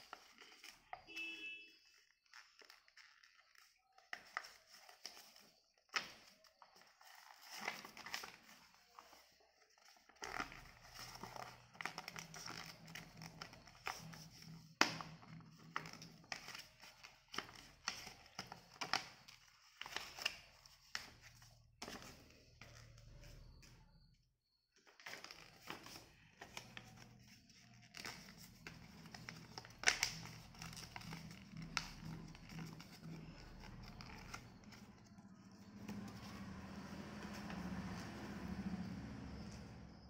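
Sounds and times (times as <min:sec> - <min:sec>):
paper being folded and creased: 0:00.0 - 0:01.1, 0:01.8 - 0:23.8, 0:24.8 - 0:38.4.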